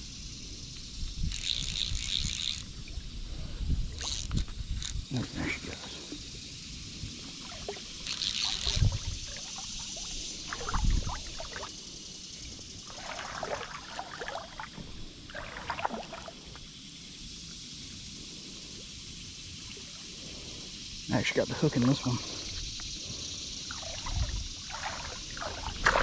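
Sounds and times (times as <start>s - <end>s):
water sloshing and splashing: 7.1s - 11.8s, 12.7s - 16.7s, 23.6s - 26.0s.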